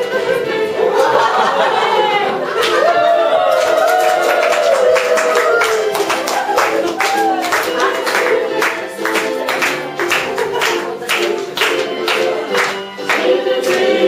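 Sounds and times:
voices singing: 0.0s - 14.0s
music with steady beat: 5.8s - 14.0s.

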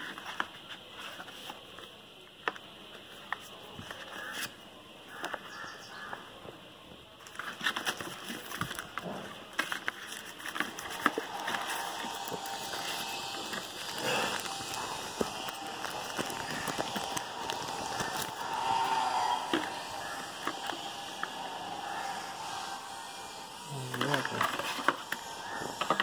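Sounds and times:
paper rustling: 7.2s - 21.0s.

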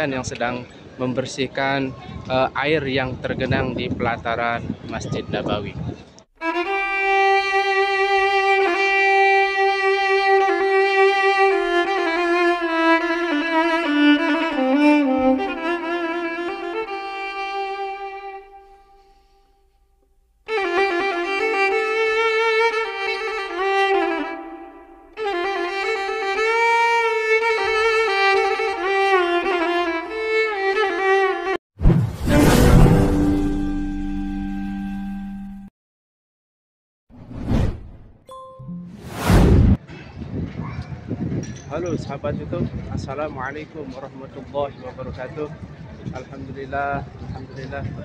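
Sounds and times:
violin playing slow melody: 6.4s - 19.4s, 20.5s - 31.6s
sudden swish: 31.8s - 33.8s, 37.2s - 38.2s, 38.9s - 39.8s.

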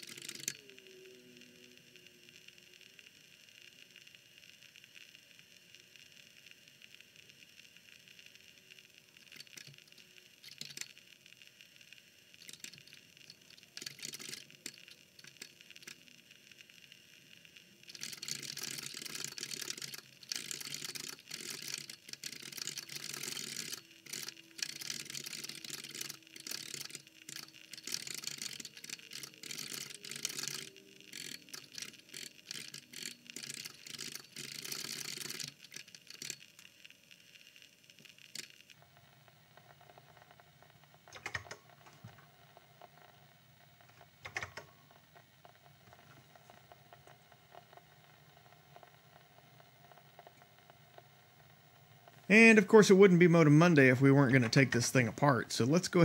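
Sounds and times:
keyboard typing: 0.0s - 0.6s, 9.3s - 11.0s, 12.4s - 16.0s, 17.9s - 36.5s, 38.3s - 50.7s.

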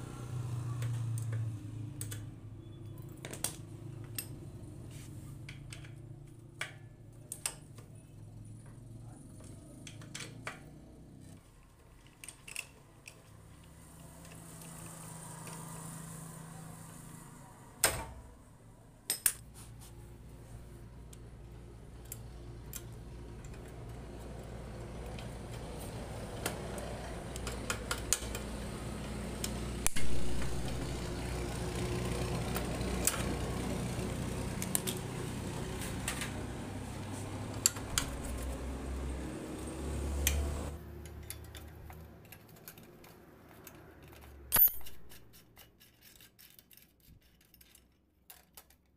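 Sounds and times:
tools clinking on metal parts: 19.1s - 19.4s, 40.9s - 48.9s.

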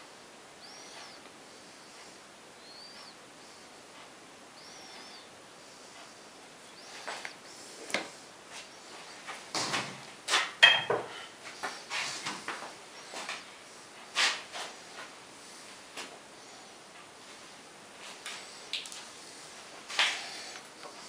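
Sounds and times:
hand tools knocking and clattering: 10.6s - 11.1s.

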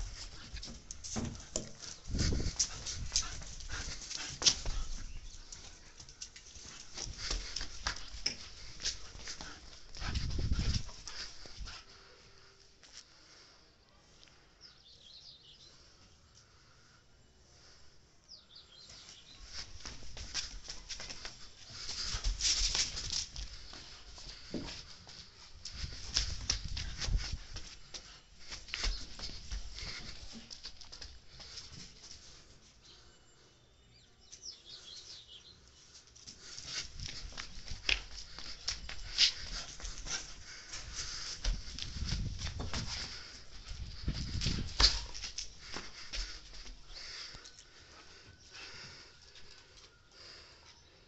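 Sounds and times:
dog scuffing and clicking: 0.0s - 11.8s, 19.5s - 32.2s, 36.2s - 46.8s.

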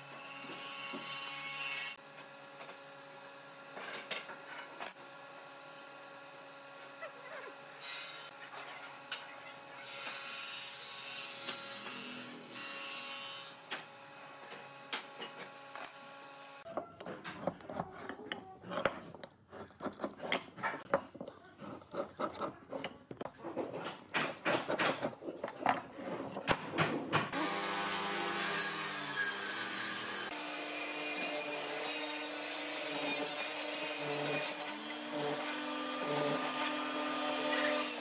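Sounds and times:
pencil marking on wood: 19.5s - 23.9s
marking gauge scraping wood: 21.2s - 26.4s
wood and tool knocks: 23.4s - 27.4s.

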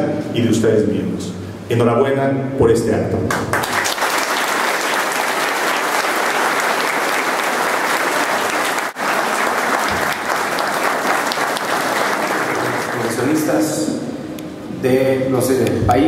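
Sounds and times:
crowd applauding: 3.3s - 13.8s.

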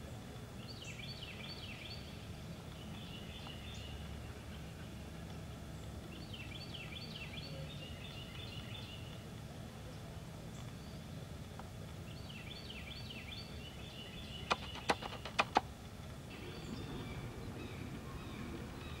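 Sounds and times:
low background rumble: 0.0s - 19.0s
small birds chirping: 0.0s - 19.0s
sharp clicks: 14.5s - 15.8s.

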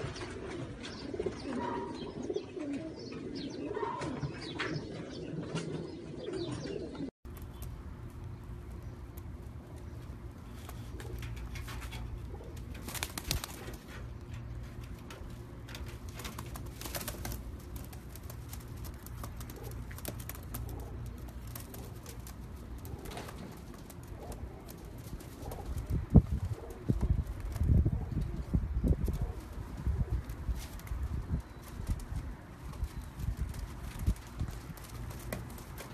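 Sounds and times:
pigeons cooing: 0.0s - 7.1s, 10.3s - 14.2s, 16.3s - 30.7s.

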